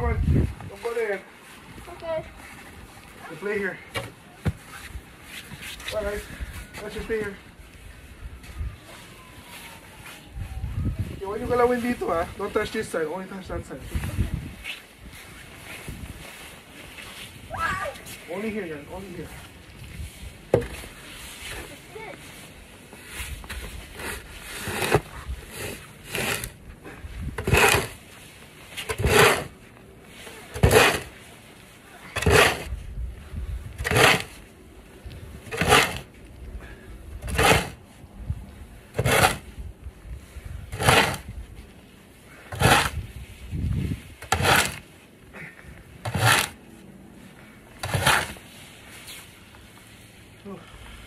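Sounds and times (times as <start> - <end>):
snow shovel scraping: 20.6 - 26.6, 27.4 - 31.4, 32.0 - 32.8, 33.8 - 34.4, 35.4 - 36.1, 37.2 - 37.8, 39.0 - 39.6, 40.7 - 41.3, 42.3 - 43.0, 44.2 - 44.9, 46.0 - 46.6, 47.7 - 49.4.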